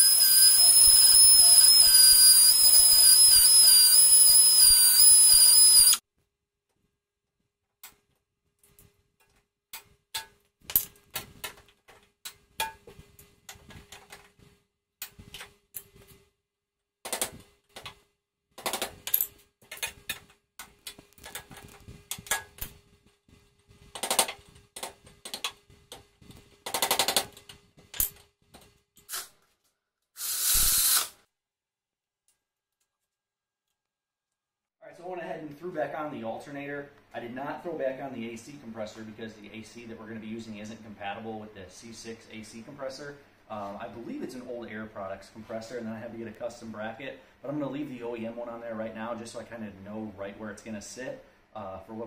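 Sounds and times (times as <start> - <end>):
cordless electric ratchet: 0.0 - 6.0, 30.2 - 31.2.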